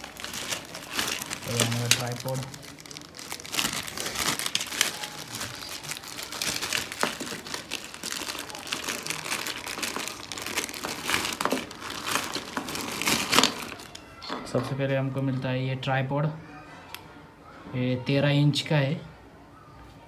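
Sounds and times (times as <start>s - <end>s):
plastic bag crinkling: 0.0s - 14.1s.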